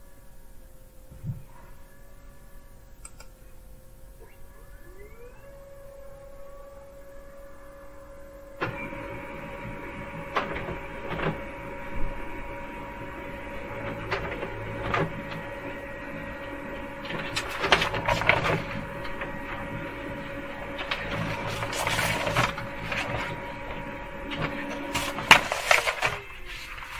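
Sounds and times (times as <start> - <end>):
laser printer running: 0.0 - 26.9
printer clattering: 8.2 - 26.9.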